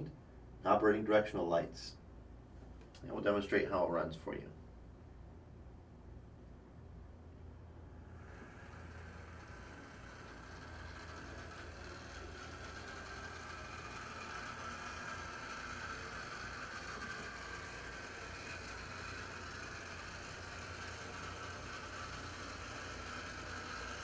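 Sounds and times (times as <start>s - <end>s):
low hum: 1.9s - 24.0s
model train motor whine: 7.9s - 24.0s.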